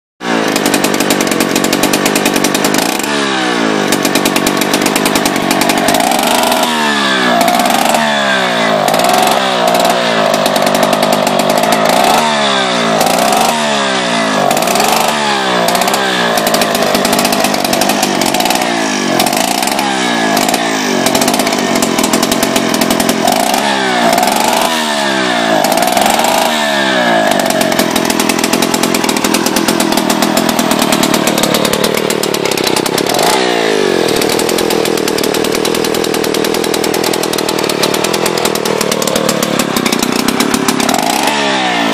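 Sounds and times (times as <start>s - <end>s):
chainsaw engine revving: 0.2s - 41.9s.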